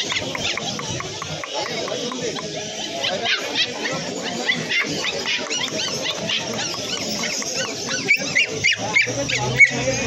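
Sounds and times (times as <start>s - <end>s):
puppies yipping and whimpering: 0.0s - 10.0s
puppy yelp: 3.0s - 9.8s.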